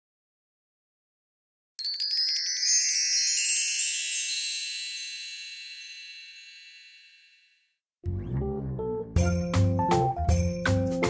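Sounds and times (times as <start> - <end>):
sparkle chime: 1.8 - 7.7, 9.3 - 11.0.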